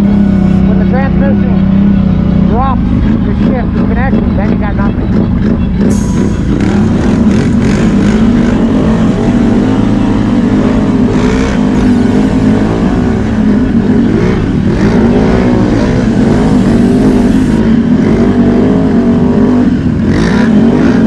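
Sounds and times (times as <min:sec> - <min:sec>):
atv engine revving: 0:00.0 - 0:21.0.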